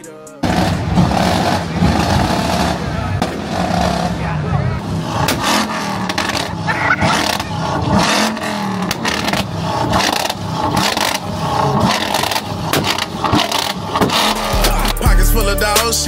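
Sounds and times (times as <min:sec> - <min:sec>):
music: 0:00.0 - 0:00.6, 0:14.4 - 0:16.0
truck engine revving hard: 0:00.4 - 0:16.0
exhaust pops and bangs: 0:05.1 - 0:06.5, 0:07.2 - 0:15.9.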